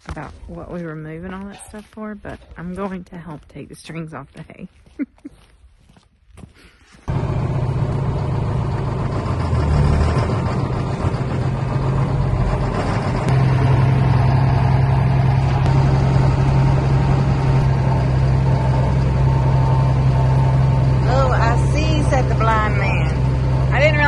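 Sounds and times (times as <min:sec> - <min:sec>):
tractor diesel engine running: 0:07.1 - 0:24.0.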